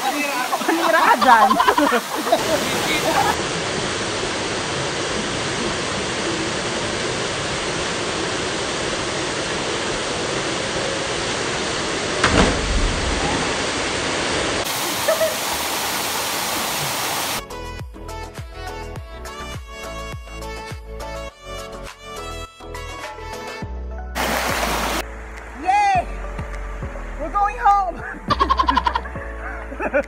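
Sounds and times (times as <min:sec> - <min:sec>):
waterfall rushing: 0:00.0 - 0:17.4, 0:24.2 - 0:27.3
brief thump: 0:12.2 - 0:13.2
background music: 0:17.4 - 0:30.0.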